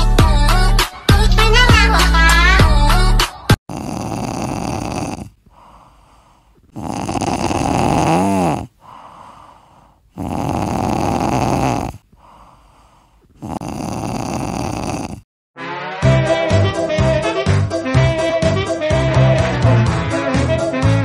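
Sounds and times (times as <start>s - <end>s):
kitten snoring: 3.6s - 15.3s.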